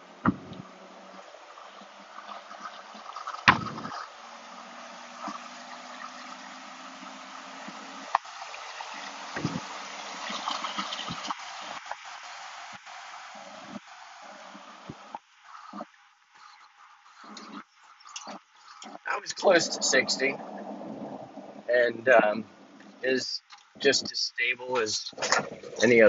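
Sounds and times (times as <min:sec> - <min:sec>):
road and wind rush in truck cab: 0:00.0 - 0:16.6, 0:17.2 - 0:26.0
knocks: 0:00.2 - 0:00.6, 0:03.5 - 0:04.0.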